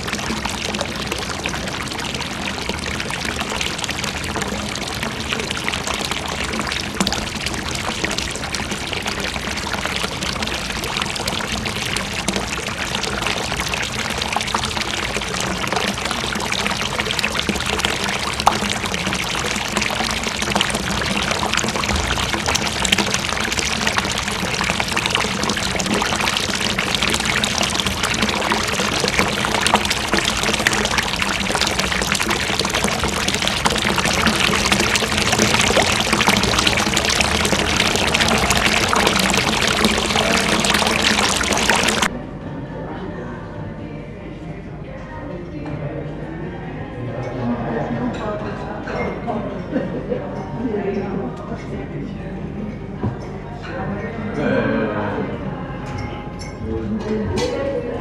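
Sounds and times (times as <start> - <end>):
water pouring into basin: 0.0 - 42.2.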